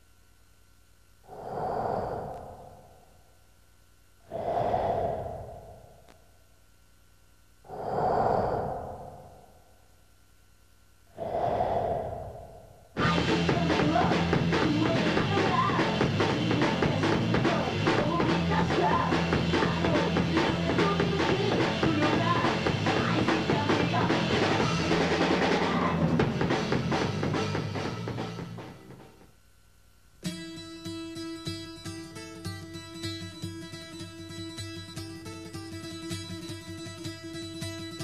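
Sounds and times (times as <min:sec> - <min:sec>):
breath-like sound: 0:01.2 - 0:03.2, 0:04.2 - 0:06.2, 0:07.6 - 0:09.8, 0:11.1 - 0:13.0
band music with drum kit: 0:13.0 - 0:29.2.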